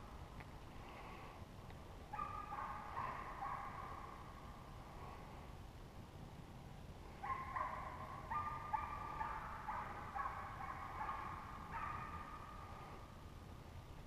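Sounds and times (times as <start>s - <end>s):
hounds baying: 2.1s - 4.1s, 7.2s - 12.6s.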